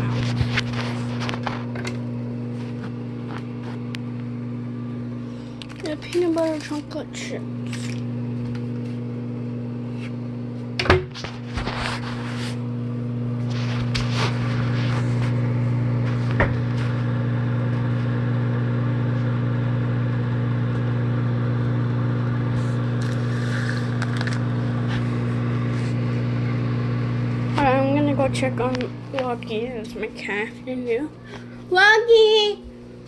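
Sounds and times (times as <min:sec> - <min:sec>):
microwave oven humming: 0:00.0 - 0:33.0
packaging rustling: 0:23.9 - 0:24.4.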